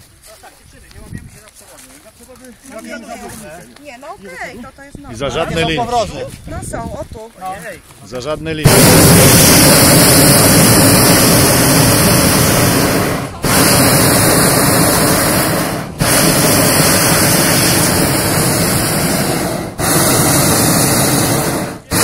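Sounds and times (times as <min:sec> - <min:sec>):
propane burner blasting: 0:08.6 - 0:22.0.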